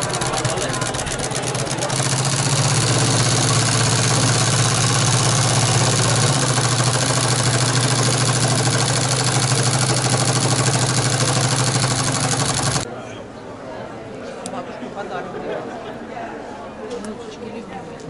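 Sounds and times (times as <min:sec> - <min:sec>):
sewing machine running fast: 0:00.0 - 0:12.8.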